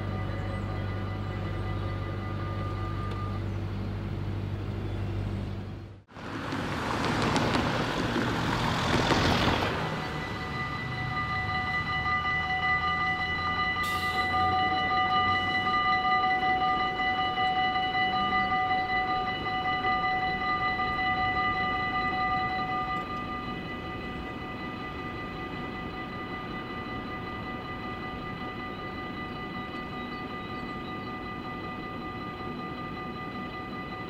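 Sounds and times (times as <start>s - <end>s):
low engine hum: 0.0s - 32.2s
level crossing warning bells: 0.0s - 34.0s
vehicle rushing past: 6.1s - 10.9s.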